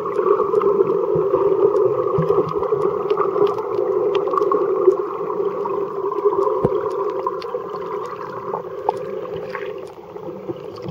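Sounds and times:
faint clicks and ticks: 0.0s - 10.9s.

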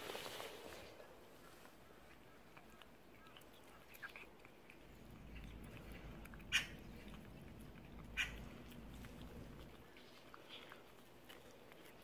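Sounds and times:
cat licking wet clicks: 2.4s - 12.0s.

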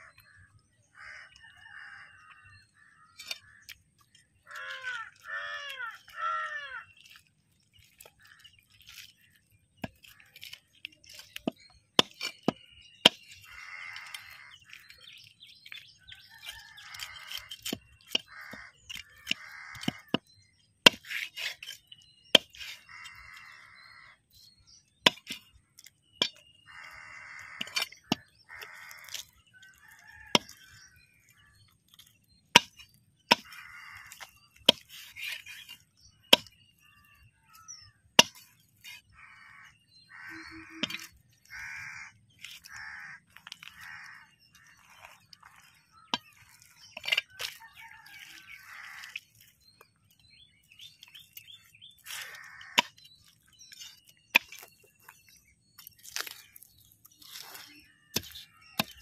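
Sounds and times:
crows cawing: 0.0s - 3.8s, 4.4s - 7.3s, 13.4s - 15.0s, 16.1s - 20.2s, 22.5s - 24.2s, 26.6s - 31.7s, 32.7s - 35.0s, 36.8s - 49.2s, 52.0s - 53.4s
small birds chirping: 0.0s - 59.0s
chopper blade chopping fish on wood: 25.1s - 25.5s.

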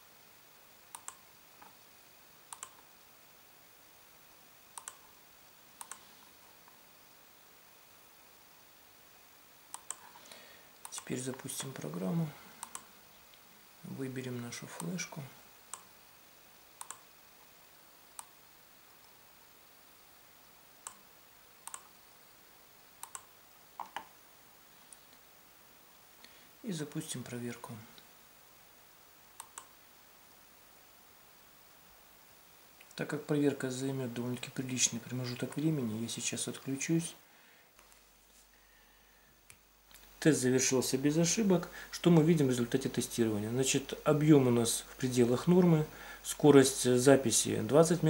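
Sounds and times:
computer mouse clicking: 0.9s - 1.8s, 2.5s - 2.9s, 4.8s - 5.1s, 5.8s - 6.1s, 9.7s - 10.2s, 10.8s - 11.8s, 12.6s - 12.9s, 16.8s - 17.1s, 20.8s - 21.0s, 21.6s - 21.9s, 23.0s - 24.1s, 29.4s - 29.8s.

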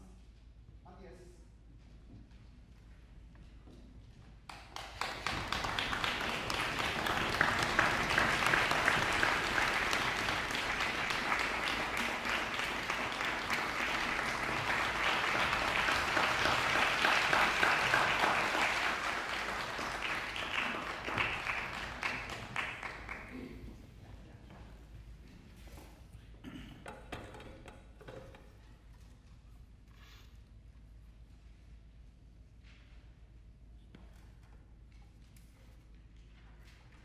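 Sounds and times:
audience applauding: 4.5s - 23.8s.

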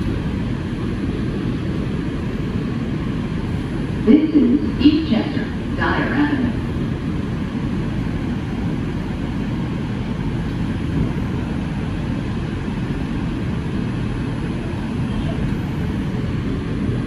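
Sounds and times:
subway wheels rumbling on rails: 0.0s - 17.0s.

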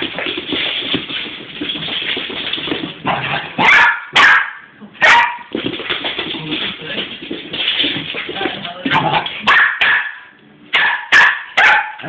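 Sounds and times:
puppy barking: 3.6s - 5.5s, 9.0s - 12.0s.

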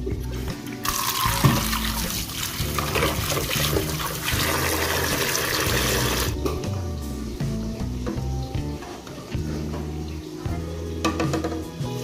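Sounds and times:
background music: 0.0s - 12.0s
tap water running onto eggs: 0.6s - 6.6s.

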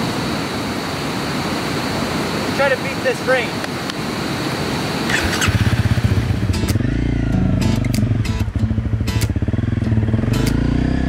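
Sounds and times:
motorcycle engine pulling away: 5.1s - 11.0s
sharp clicks: 7.7s - 8.5s, 9.1s - 9.4s, 10.4s - 10.6s.

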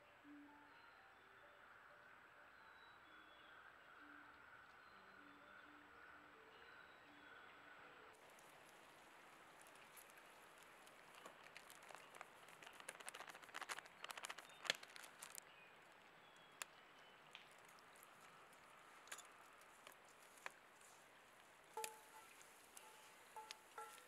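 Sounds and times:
faint crackling: 8.2s - 24.0s.

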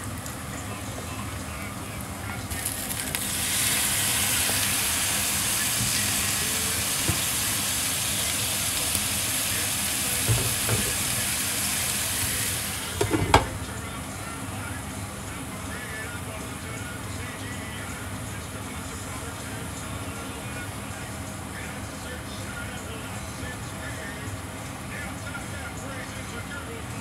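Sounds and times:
food sizzling in a hot pan: 2.5s - 13.4s.

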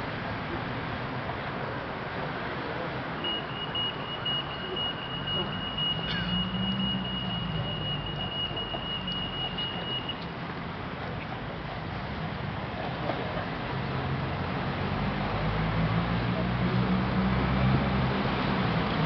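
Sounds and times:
high-pitched electronic beep: 3.2s - 10.2s.

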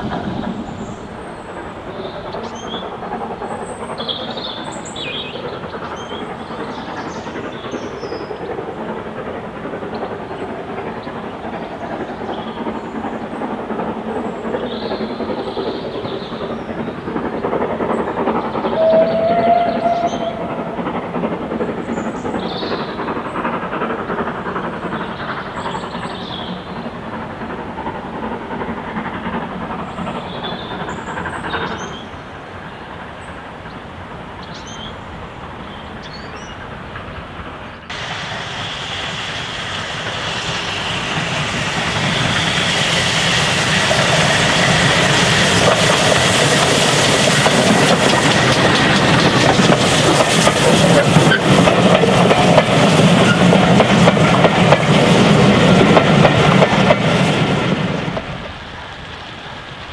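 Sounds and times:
steam locomotive exhaust beats: 0.0s - 59.9s
train whistle blast: 18.7s - 20.8s.

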